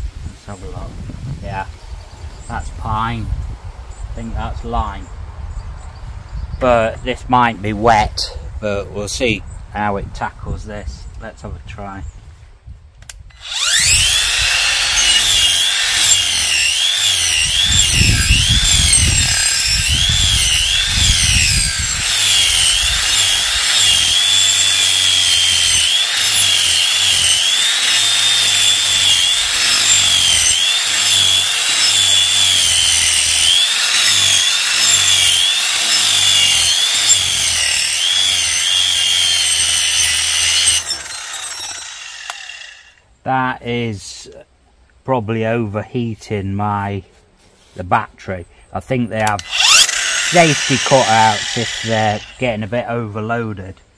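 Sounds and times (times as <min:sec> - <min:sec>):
angle grinder motor whine: 0:13.3 - 0:43.0, 0:49.3 - 0:52.6
disc grinding into wood: 0:13.4 - 0:43.0, 0:49.2 - 0:52.6.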